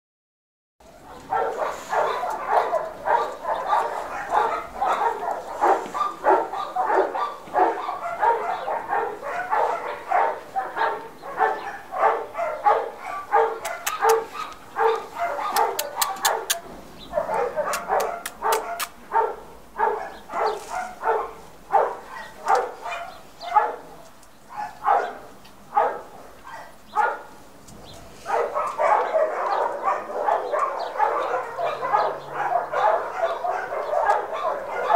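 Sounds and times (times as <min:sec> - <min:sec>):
dog barking: 0:00.8 - 0:27.4, 0:28.1 - 0:34.9
sharp clicks: 0:13.6 - 0:14.2, 0:15.5 - 0:16.6.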